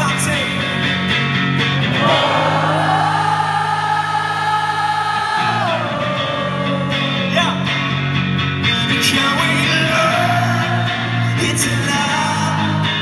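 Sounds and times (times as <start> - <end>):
electric bass: 0.0 - 13.0
electric guitar: 0.0 - 13.0
person singing: 1.9 - 7.9, 8.8 - 13.0
live rock band playing: 5.4 - 13.0.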